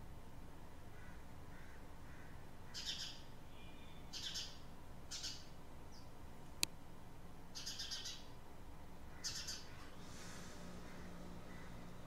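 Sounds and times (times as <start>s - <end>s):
faint background noise: 0.0s - 12.0s
birds chirping: 0.9s - 6.3s, 7.5s - 8.4s, 9.0s - 12.0s.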